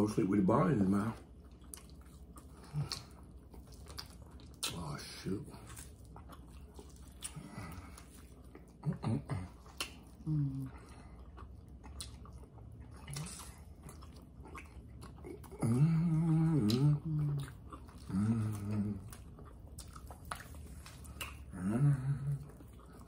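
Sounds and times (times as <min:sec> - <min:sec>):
person chewing: 0:00.7 - 0:23.0
person humming mmm: 0:15.5 - 0:19.2, 0:21.5 - 0:22.5.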